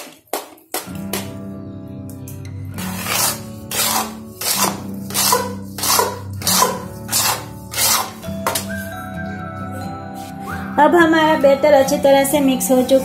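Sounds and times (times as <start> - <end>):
background music: 0.0 - 13.0
metal spoon scraping batter in bowl: 2.8 - 8.2.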